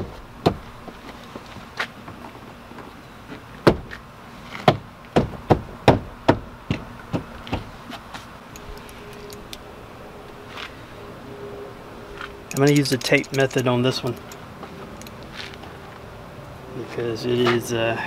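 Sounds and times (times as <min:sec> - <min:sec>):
door trim panel knocks: 0:03.6 - 0:03.9, 0:04.7 - 0:07.7
clips snapping: 0:12.5 - 0:14.4.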